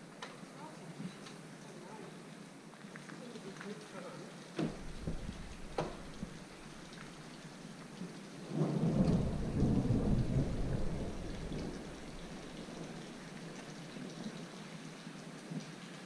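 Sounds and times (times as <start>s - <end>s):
faint steady hiss: 0.0s - 16.0s
distant thunder rumble: 4.7s - 7.1s, 8.4s - 13.4s.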